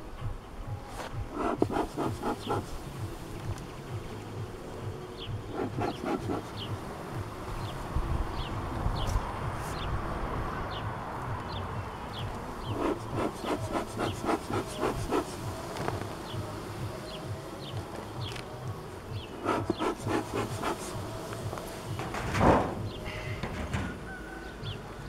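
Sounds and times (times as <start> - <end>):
honeybees buzzing: 0.0 - 25.0
short rasping strokes: 0.9 - 3.0, 5.4 - 6.8, 12.6 - 16.4, 19.2 - 23.2.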